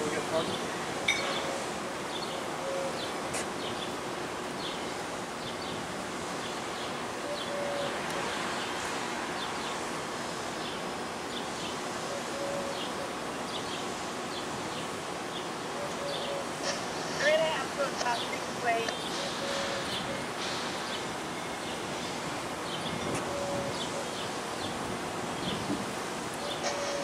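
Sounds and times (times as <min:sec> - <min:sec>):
outdoor background hiss: 0:00.0 - 0:27.0
small birds chirping: 0:20.8 - 0:27.0.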